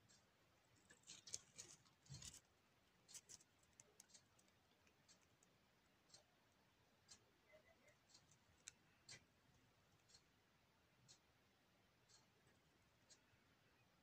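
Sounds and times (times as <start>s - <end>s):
hamster nibbling: 0.0s - 13.9s.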